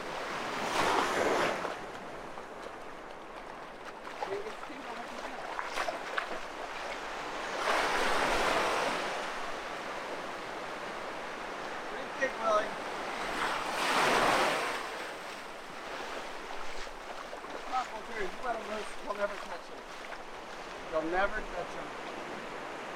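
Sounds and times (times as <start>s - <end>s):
ocean surf washing in: 0.0s - 2.4s, 4.3s - 19.7s.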